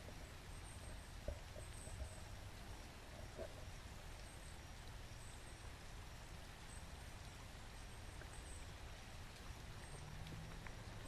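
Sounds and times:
faint bird chirps: 0:00.1 - 0:08.8.

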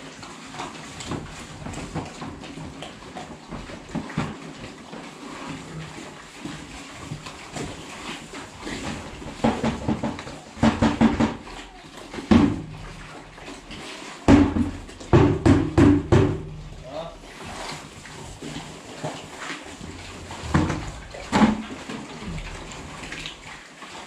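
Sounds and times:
pigs grunting: 0:20.2 - 0:23.3.

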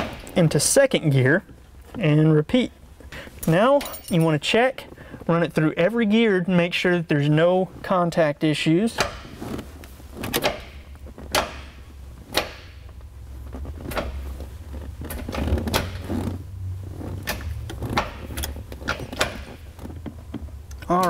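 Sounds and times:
gear shifter clicks and clunks: 0:09.0 - 0:21.0.

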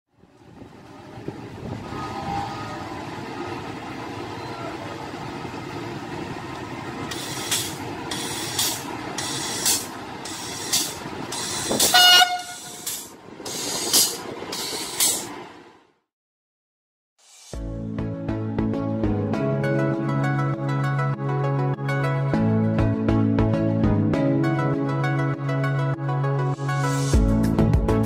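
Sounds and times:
train rumbling: 0:00.1 - 0:16.0
train horn blast: 0:11.8 - 0:13.1.

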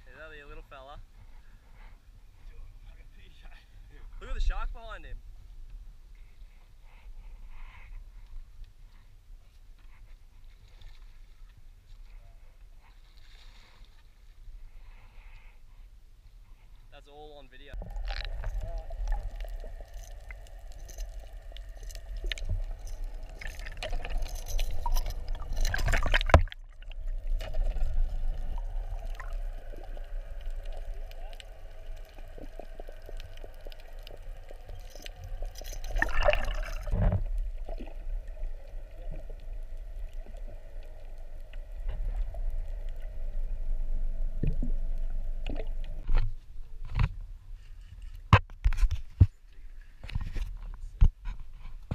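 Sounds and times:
underwater gurgling and sloshing: 0:17.6 - 0:47.7
low underwater rumble: 0:17.8 - 0:46.8.

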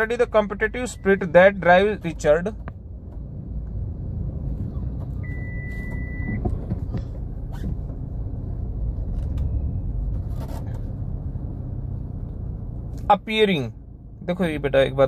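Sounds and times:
short high-pitched beep: 0:05.2 - 0:06.4.

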